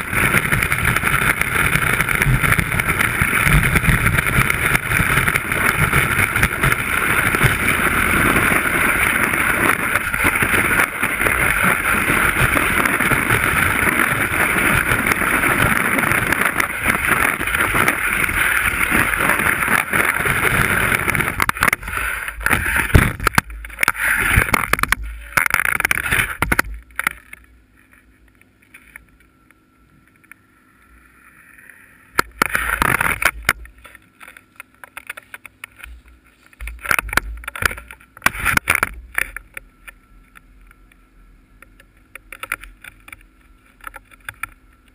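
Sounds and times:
ski sliding over snow: 0:00.0 - 0:26.6.

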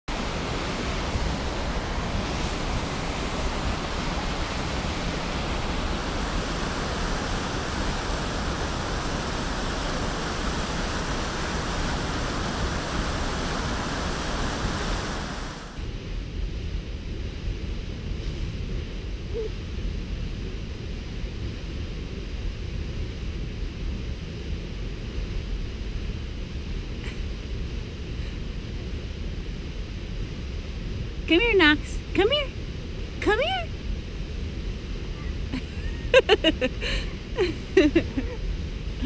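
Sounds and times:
waterfall rushing: 0:00.1 - 0:15.8.

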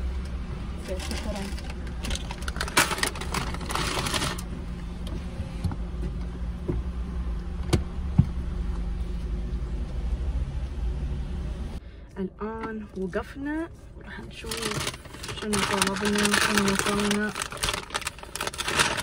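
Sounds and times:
car interior hum: 0:00.0 - 0:19.0
rustling: 0:14.3 - 0:19.0.

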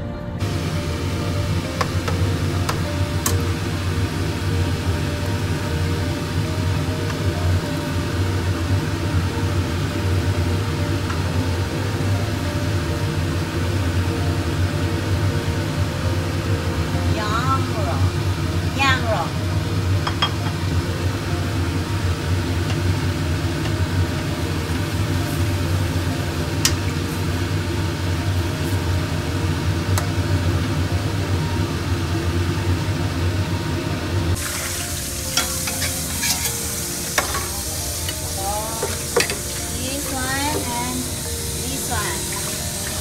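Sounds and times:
meat simmering in a wok: 0:00.4 - 0:17.2, 0:17.8 - 0:43.0
kitchen utensils knocking: 0:20.0 - 0:20.6, 0:38.8 - 0:39.5.

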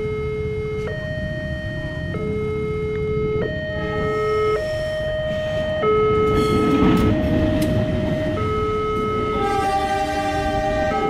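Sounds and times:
level crossing two-tone alarm: 0:00.0 - 0:11.0
train rumbling past: 0:03.8 - 0:11.0
train horn: 0:09.2 - 0:11.0.

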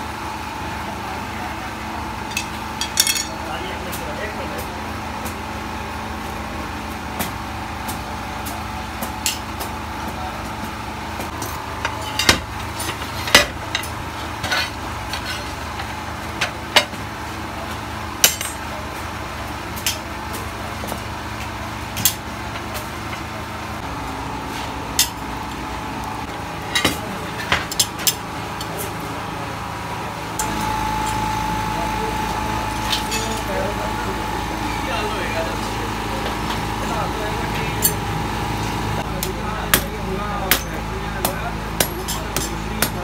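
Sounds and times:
steady mechanical drone: 0:00.0 - 0:43.0
metal tools clinking: 0:02.3 - 0:03.4, 0:32.8 - 0:33.5.

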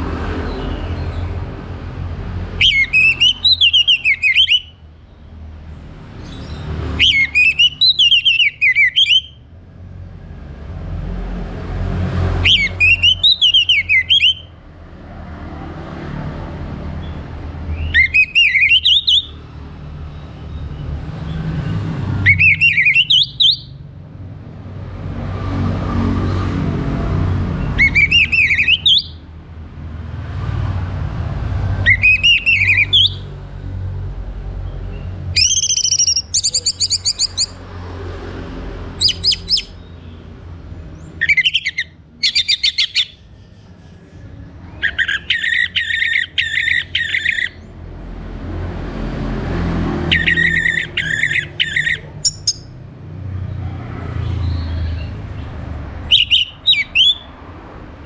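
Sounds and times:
thrush singing whistled phrases: 0:02.6 - 0:04.8, 0:07.0 - 0:09.5, 0:12.4 - 0:14.6, 0:17.7 - 0:19.4, 0:22.2 - 0:23.8, 0:27.8 - 0:29.2, 0:31.8 - 0:33.2, 0:35.3 - 0:37.6, 0:39.0 - 0:39.8, 0:41.2 - 0:43.2, 0:44.8 - 0:47.6, 0:50.1 - 0:52.7, 0:56.1 - 0:57.4.

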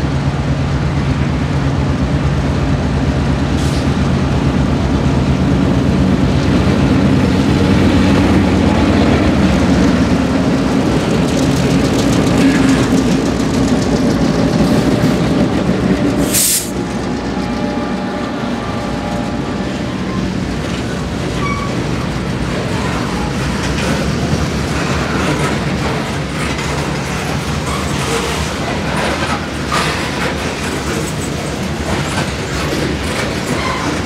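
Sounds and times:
diesel locomotive engines humming: 0:00.0 - 0:34.0
train wheels rumbling on rail: 0:00.0 - 0:34.0
short hiss: 0:16.2 - 0:16.8.

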